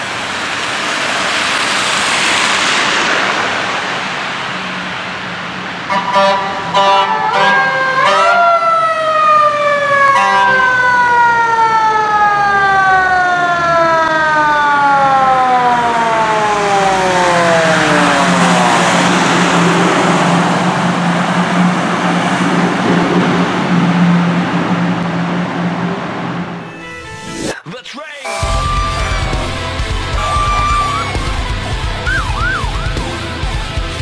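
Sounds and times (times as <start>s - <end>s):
tyres hissing through slush: 0.0s - 4.8s
engine hum: 0.0s - 6.8s, 14.8s - 27.1s, 28.4s - 34.0s
fire engine horn blasts: 5.9s - 9.0s, 10.0s - 11.3s.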